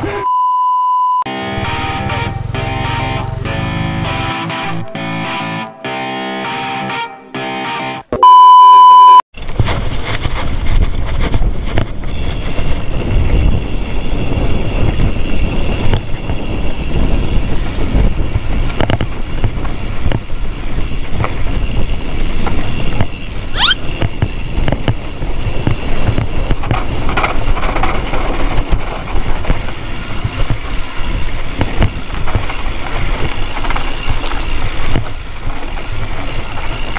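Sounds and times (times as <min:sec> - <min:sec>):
test-pattern beep: 0:00.2 - 0:01.3, 0:08.1 - 0:09.2
bike rattling over dirt: 0:01.4 - 0:04.9, 0:09.4 - 0:36.9
wind rumbling on microphone: 0:09.4 - 0:36.9
short rising squeal: 0:23.5 - 0:23.8.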